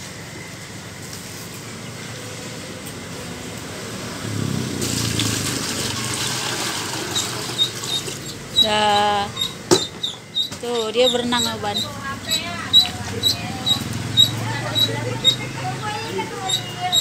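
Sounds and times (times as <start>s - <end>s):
water pouring into plastic bucket: 4.8s - 8.2s.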